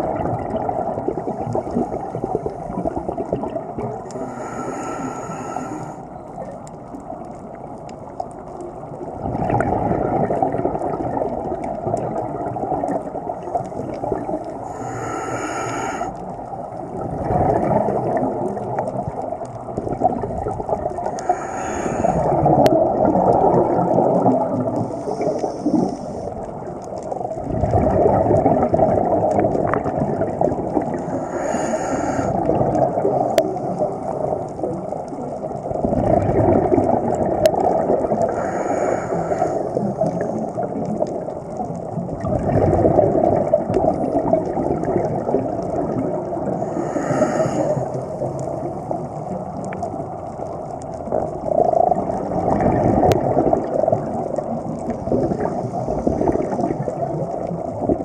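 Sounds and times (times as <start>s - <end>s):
gurgling exhaled bubbles: 0.0s - 58.0s
regulator inhalation hiss: 4.1s - 6.0s, 14.6s - 16.2s, 21.2s - 22.4s, 24.9s - 26.3s, 31.0s - 32.4s, 38.3s - 39.9s, 46.6s - 48.0s.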